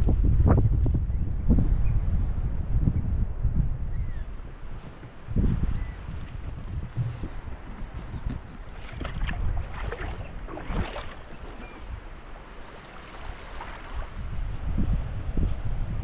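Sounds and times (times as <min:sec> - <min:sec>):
wind buffeting microphone: 0:00.0 - 0:16.0
footsteps crunching on sand: 0:04.8 - 0:10.2.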